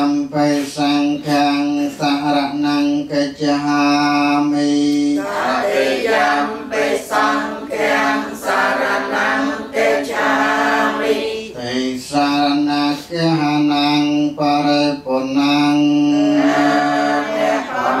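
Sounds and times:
group chanting in unison: 4.3 - 12.0, 15.9 - 18.0.

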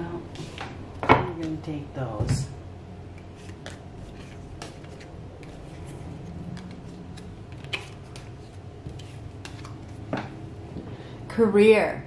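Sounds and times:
steady low hum: 0.0 - 12.0
cardboard cards clicking and tapping: 3.2 - 5.9, 6.5 - 10.4.

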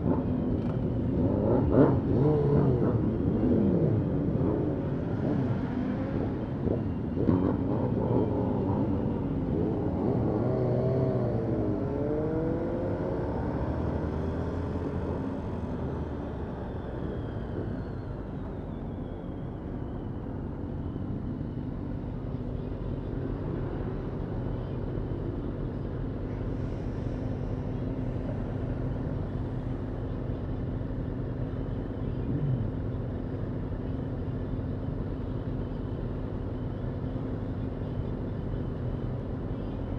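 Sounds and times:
motorcycle engines revving: 0.0 - 17.4, 27.6 - 37.8.

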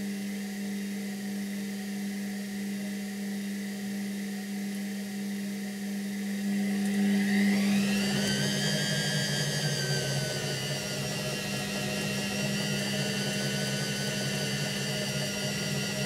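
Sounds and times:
washing machine motor hum: 6.0 - 16.0
rising machine whine: 6.4 - 16.0.

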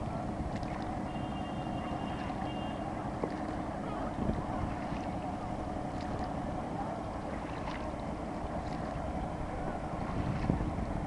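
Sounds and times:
boat engine rumble and drone: 0.0 - 11.0.

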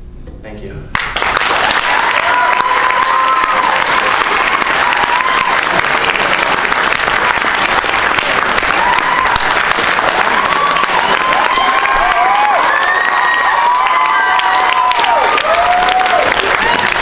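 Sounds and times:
audience applauding: 0.9 - 17.0
people whooping: 1.5 - 17.0.

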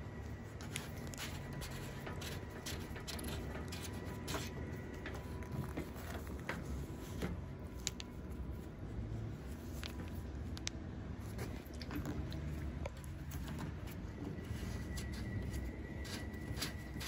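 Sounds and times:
low steady hum: 0.0 - 17.0
plastic rubbing on plastic: 0.2 - 17.0.

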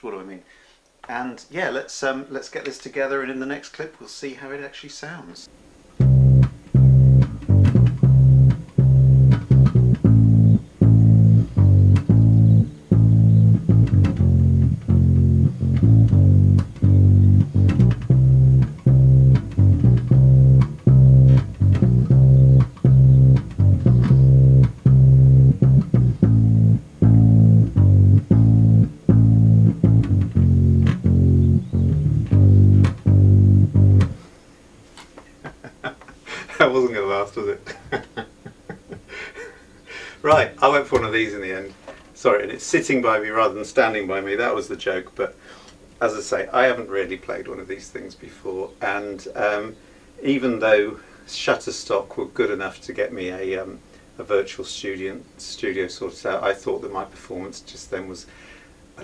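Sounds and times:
plucked upright bass notes: 6.0 - 34.2.

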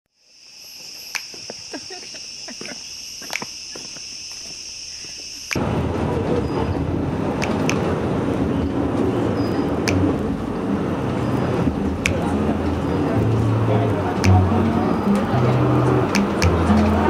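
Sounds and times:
insect chorus drone: 0.1 - 5.6, 8.5 - 16.1
insect clicks and chirps: 0.2 - 5.6
moving vehicle rumble and hiss: 1.4 - 17.0.

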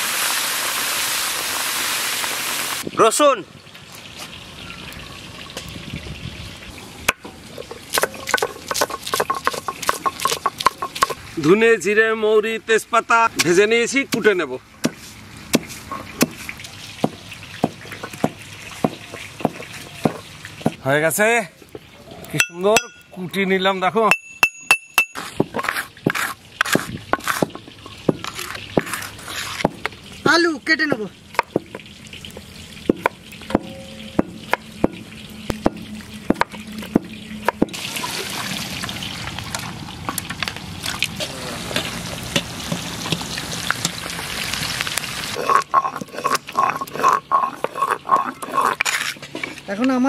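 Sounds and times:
stone roller knock: 8.0 - 11.2, 24.1 - 29.9
brass plate ringing under taps: 24.1 - 25.3, 33.5 - 36.6
stone scraping on grinding slab: 25.1 - 29.9, 45.4 - 49.7.

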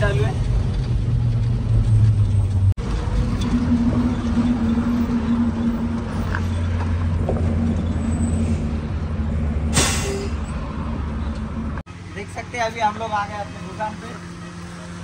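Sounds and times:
truck engine droning: 0.0 - 15.0.

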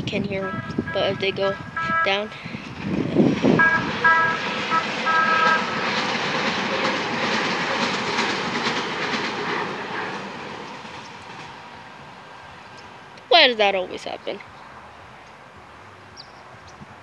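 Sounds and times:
wheels clattering on rails: 0.0 - 12.1
trolley horn toots: 0.4 - 2.3, 3.5 - 5.8.

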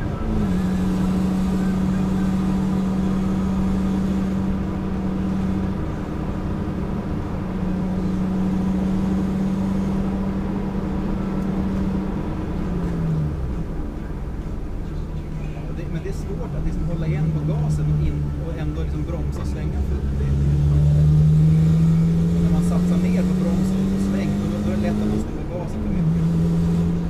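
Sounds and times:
car engine droning: 0.0 - 27.0
tyre and road noise: 0.0 - 27.0.

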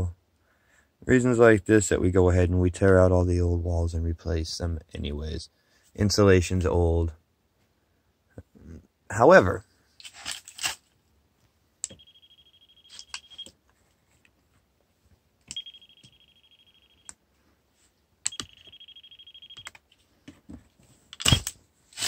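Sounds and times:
voltage tester beeping: 11.8 - 13.5, 15.5 - 17.2, 18.3 - 19.8.

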